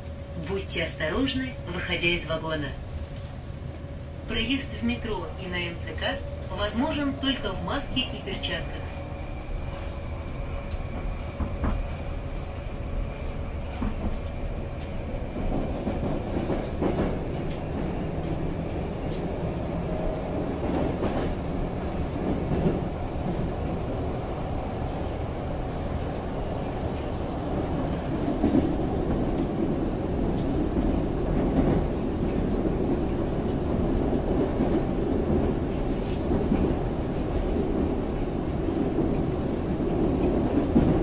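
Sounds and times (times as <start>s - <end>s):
metro train wheels rumbling: 0.0s - 41.0s.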